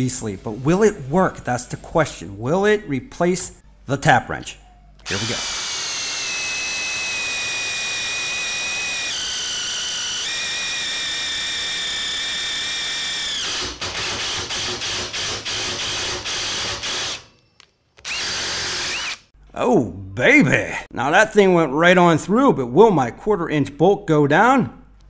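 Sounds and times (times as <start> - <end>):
impact driver drilling steel: 5.1 - 17.3, 18.0 - 19.3.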